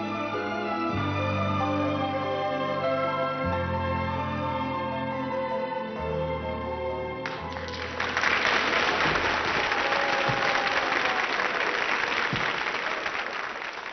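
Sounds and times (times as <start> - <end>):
audience applause: 7.2 - 13.9.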